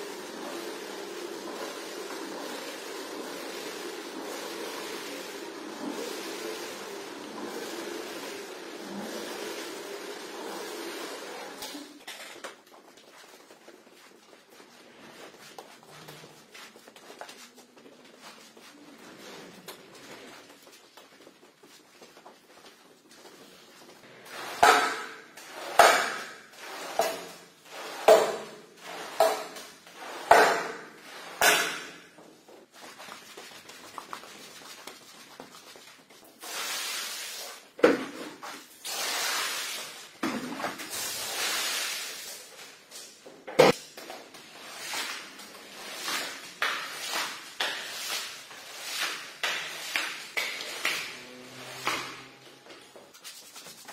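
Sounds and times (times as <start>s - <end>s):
squeegee scraping wet rug: 0.0s - 12.0s, 23.0s - 42.8s, 44.4s - 53.9s.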